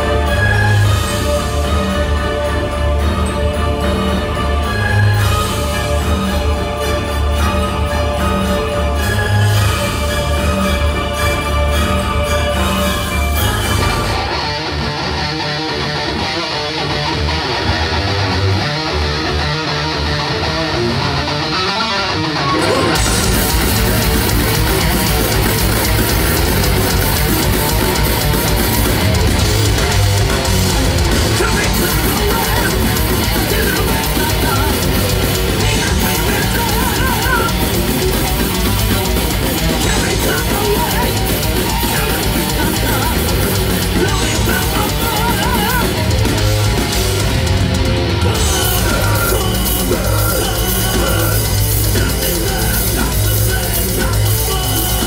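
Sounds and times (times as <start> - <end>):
bass guitar: 0.0 - 55.0
distorted electric guitars: 0.0 - 55.0
drum kit: 22.4 - 55.0.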